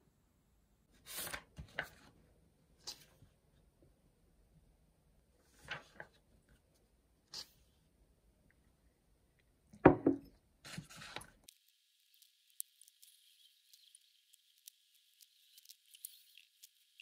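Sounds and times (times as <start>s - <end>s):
paper rustling: 1.0s - 2.2s, 5.4s - 6.2s
cup knocking on desk: 9.8s - 10.3s.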